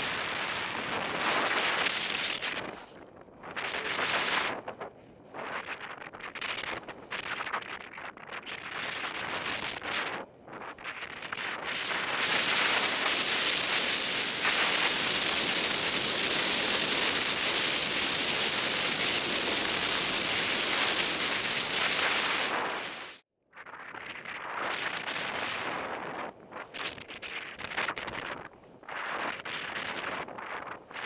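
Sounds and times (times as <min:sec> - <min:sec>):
wind rushing on microphone: 0:00.0 - 0:31.0
skis hissing through snow: 0:01.3 - 0:03.0, 0:12.0 - 0:23.2.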